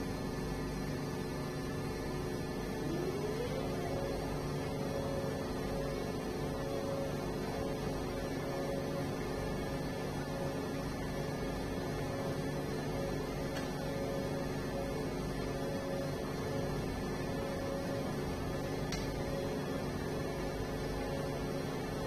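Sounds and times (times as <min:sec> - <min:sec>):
fan and motor hum: 0:00.0 - 0:22.0
rising motor whine: 0:02.4 - 0:07.1.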